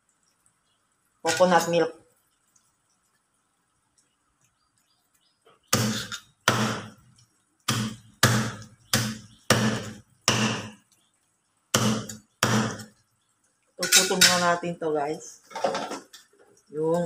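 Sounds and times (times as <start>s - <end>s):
cleaver chopping on wooden block: 5.7s - 6.9s, 7.7s - 10.8s, 11.8s - 12.9s.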